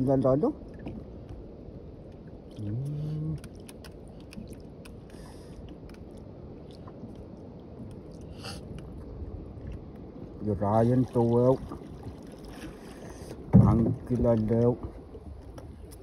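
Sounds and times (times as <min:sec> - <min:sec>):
water and wind rushing: 0:00.0 - 0:16.0
light clicks and crackles: 0:02.1 - 0:09.0
person humming: 0:02.6 - 0:03.4.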